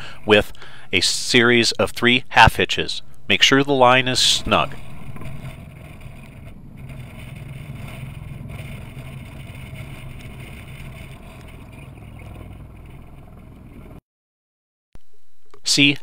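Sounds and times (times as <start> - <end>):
faint outdoor hiss: 0.0 - 13.2
low engine hum: 4.1 - 14.0.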